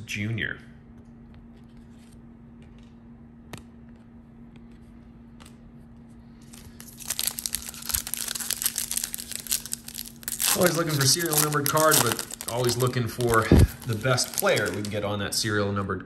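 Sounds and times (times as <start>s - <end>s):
wrapper tearing open: 6.4s - 15.1s
card pack wrapper crinkling: 6.4s - 15.2s.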